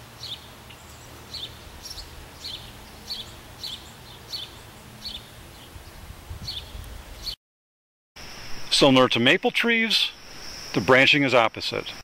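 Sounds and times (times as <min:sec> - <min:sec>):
bird chirping: 0:00.2 - 0:07.4.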